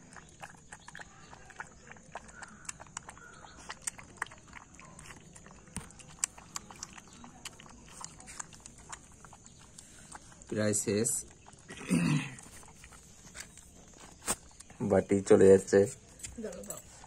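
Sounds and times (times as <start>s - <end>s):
puppy lapping food: 0.0s - 17.0s.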